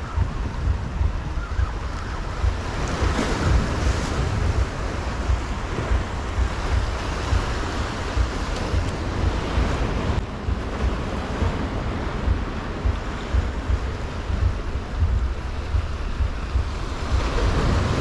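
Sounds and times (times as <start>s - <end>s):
surf washing over rocks: 0.0s - 18.0s
wind buffeting microphone: 0.0s - 18.0s.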